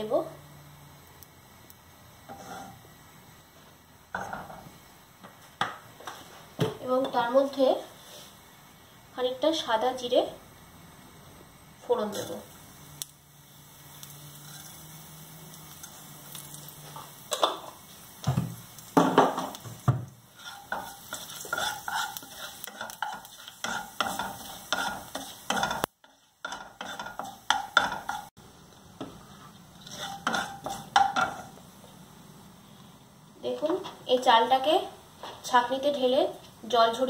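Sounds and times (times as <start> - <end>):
seeds sizzling in oil: 0.0 - 37.0
spatula scraping pan: 2.2 - 3.0, 14.0 - 15.0, 19.0 - 28.4, 29.0 - 31.6.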